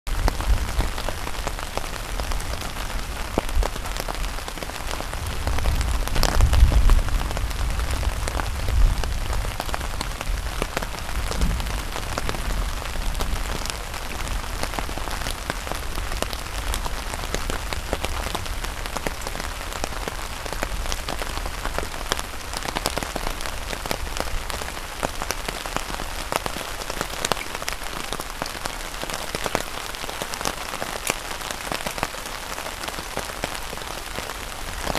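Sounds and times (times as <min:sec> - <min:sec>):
steady rain falling: 0:00.1 - 0:34.9
low thunder rumble: 0:05.2 - 0:14.6
sharp raindrop ticks: 0:25.0 - 0:32.2.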